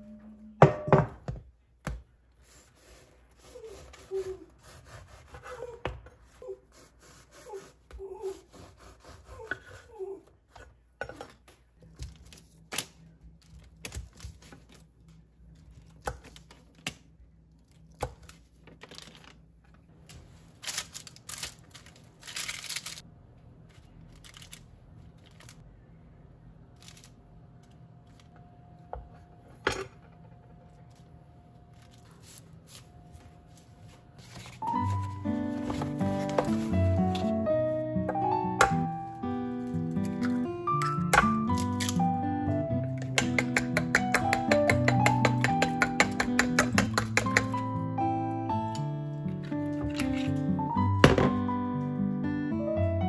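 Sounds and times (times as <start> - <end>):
low steady hum: 0.0 - 3.4
parchment paper rustling: 17.6 - 23.0, 23.6 - 25.7, 30.8 - 37.4
knife tapping on wooden board: 43.1 - 47.6.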